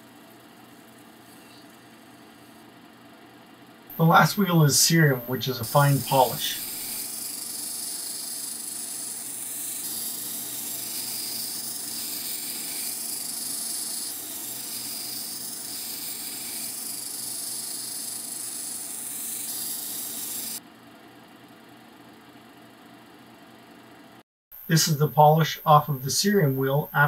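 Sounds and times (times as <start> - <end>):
polishing wheel hissing: 4.0 - 20.6.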